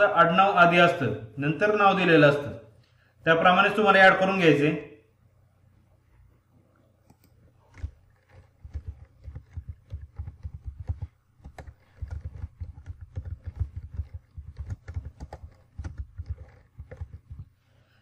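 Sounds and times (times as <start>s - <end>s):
keyboard typing: 7.0s - 17.6s.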